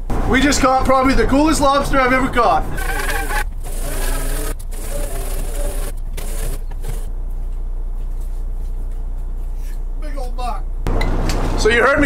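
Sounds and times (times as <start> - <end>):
boat engine droning: 0.0 - 7.3.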